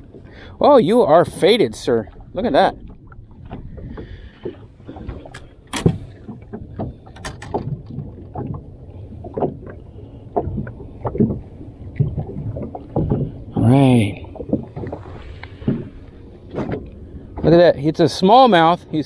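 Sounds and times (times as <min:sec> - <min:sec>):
low rumble: 0:01.9 - 0:18.1
knocks and taps on boat: 0:02.8 - 0:17.7.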